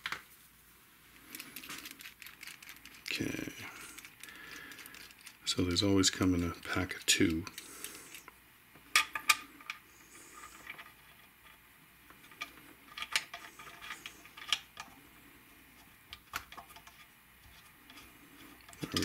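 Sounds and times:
small metal clicks and clinks: 0:01.3 - 0:03.2.

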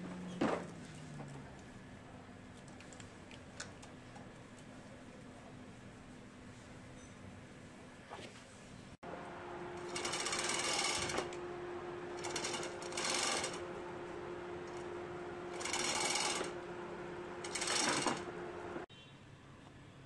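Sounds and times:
steady low hum: 0:08.7 - 0:18.9.

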